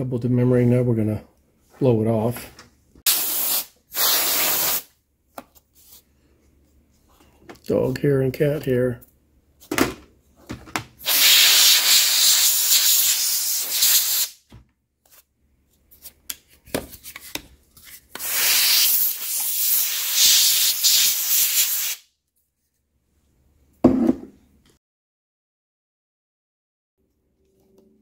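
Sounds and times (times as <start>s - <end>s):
air duster hissing blasts: 3.1s - 4.9s, 11.0s - 14.4s, 18.2s - 22.0s.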